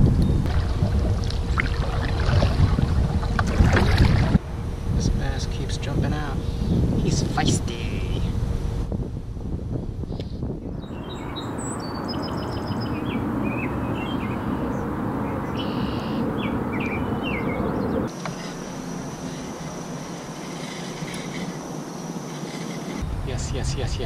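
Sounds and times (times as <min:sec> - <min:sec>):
high hum: 0:00.0 - 0:24.0
noisy rumble: 0:00.0 - 0:24.0
small birds chirping: 0:10.1 - 0:24.0.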